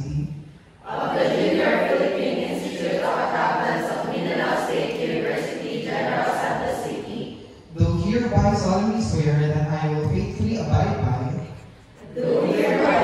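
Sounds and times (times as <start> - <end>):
group speaking in unison: 0.8 - 7.5, 12.0 - 13.0.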